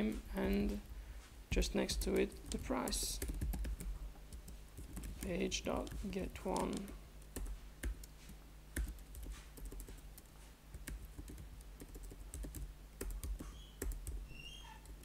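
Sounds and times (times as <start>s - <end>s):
typing on computer keyboard: 2.3s - 8.1s, 8.8s - 10.0s, 10.8s - 15.0s.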